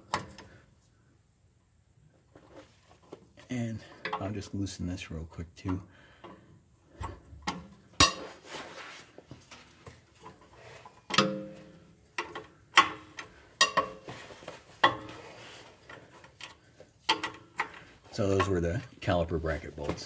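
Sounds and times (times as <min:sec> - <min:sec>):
socket wrench clinking on bolts: 0:11.1 - 0:14.0.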